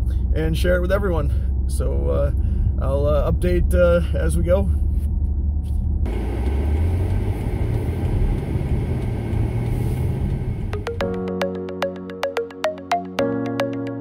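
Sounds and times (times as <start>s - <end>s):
car engine and tyre rumble: 0.0s - 11.0s
road noise hiss: 6.1s - 10.9s
upbeat music with plucked notes: 10.8s - 14.0s.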